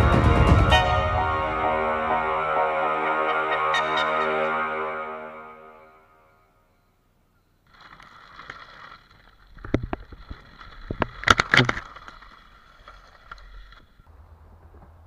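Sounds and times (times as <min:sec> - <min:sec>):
wheels knocking on wooden boards: 0:07.7 - 0:14.0.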